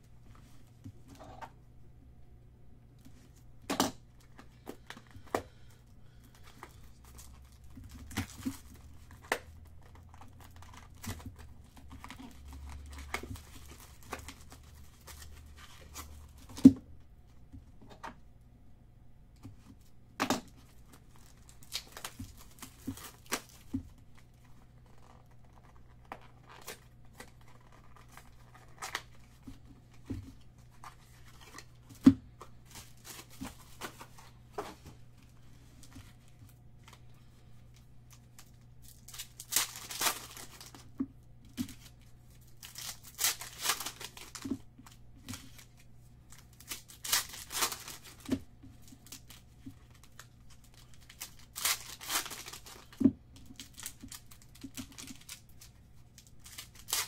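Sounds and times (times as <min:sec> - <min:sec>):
packaging tearing and crinkling: 0:06.3 - 0:16.6, 0:20.4 - 0:29.5, 0:30.8 - 0:34.3, 0:38.1 - 0:40.9, 0:41.6 - 0:57.0.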